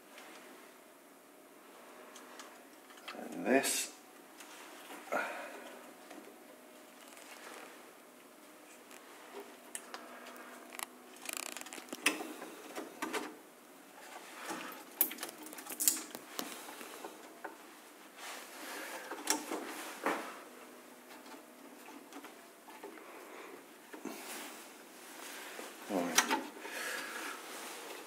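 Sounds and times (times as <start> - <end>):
small clicks taps and rustles: 8.7 - 12.3.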